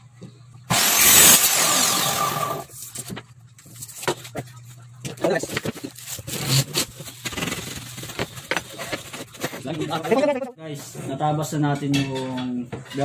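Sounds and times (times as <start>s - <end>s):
power tool cutting metal: 0.7s - 2.7s.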